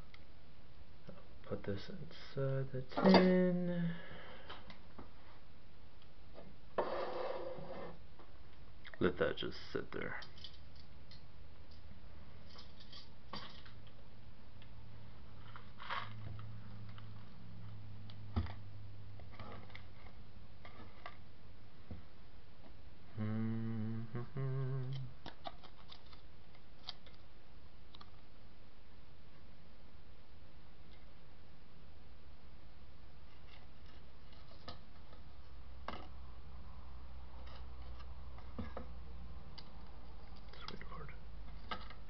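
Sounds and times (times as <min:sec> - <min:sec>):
short wordless voice sound: 0:01.4 - 0:04.0, 0:40.6 - 0:41.2
low hum: 0:21.3 - 0:25.2.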